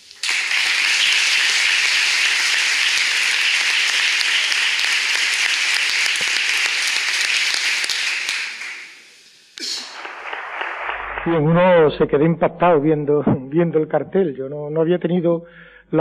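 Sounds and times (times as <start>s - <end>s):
audience applause: 0.0s - 8.9s, 9.6s - 11.5s.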